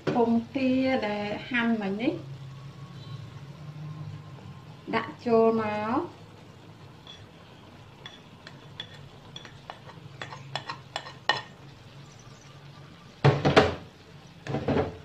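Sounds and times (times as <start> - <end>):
metal utensil scraping a plate: 8.1 - 11.5.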